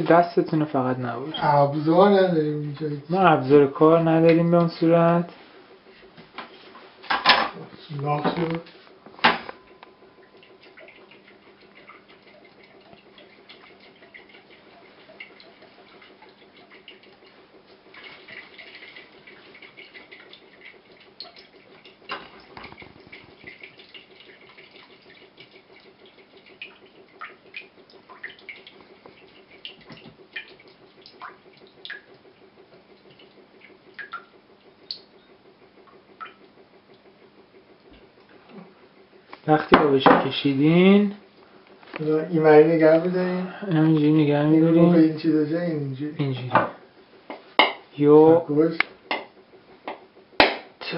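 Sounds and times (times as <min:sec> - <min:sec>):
low steady hum: 0:00.0 - 0:50.9
water trickling into a jug: 0:07.8 - 0:37.2.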